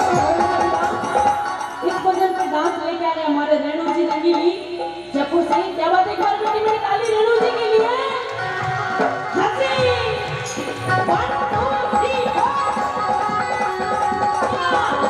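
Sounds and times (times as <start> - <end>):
woman singing: 0.0 - 15.0
hand drum: 4.0 - 15.0.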